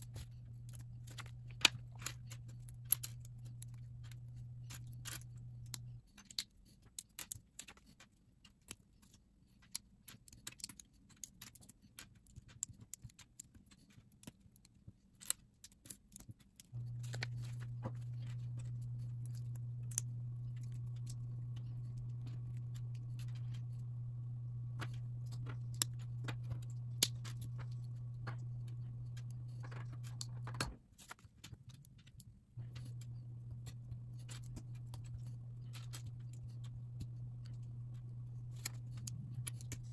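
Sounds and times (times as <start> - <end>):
low hum: 0.0 - 6.0, 16.8 - 30.8, 32.6 - 39.9.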